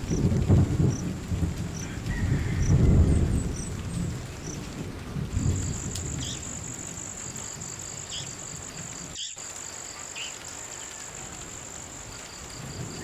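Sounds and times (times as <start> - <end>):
insects trilling: 5.4 - 13.0.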